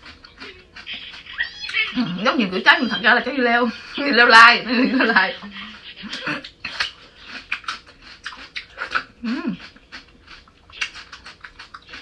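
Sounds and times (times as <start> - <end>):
crunching and chewing cucumber: 0.0 - 2.0, 6.1 - 12.0.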